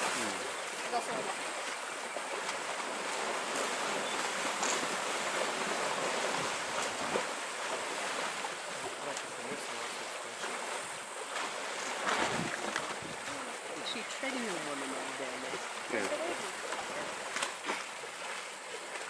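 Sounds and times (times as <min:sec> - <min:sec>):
small water splashes: 0:00.0 - 0:19.0
water washing: 0:00.0 - 0:19.0.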